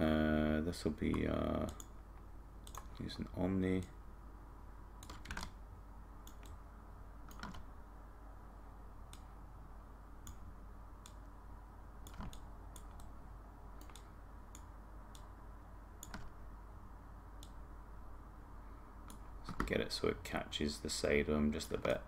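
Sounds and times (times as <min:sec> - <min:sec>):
faint steady hum: 0:00.0 - 0:22.0
computer mouse clicks: 0:01.0 - 0:02.0, 0:02.6 - 0:03.0, 0:05.0 - 0:05.6, 0:06.2 - 0:06.6, 0:07.3 - 0:07.7, 0:10.2 - 0:11.3, 0:12.0 - 0:13.2, 0:13.8 - 0:15.3, 0:16.0 - 0:16.4
keyboard clicks: 0:02.6 - 0:03.0, 0:05.0 - 0:05.6, 0:06.2 - 0:06.6, 0:07.3 - 0:07.7, 0:12.0 - 0:13.1, 0:13.8 - 0:15.3, 0:16.0 - 0:16.3.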